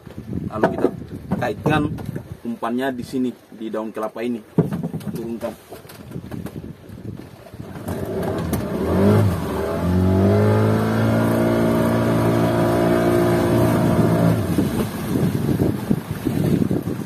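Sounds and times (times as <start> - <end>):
outboard motor revving: 7.6 - 17.0.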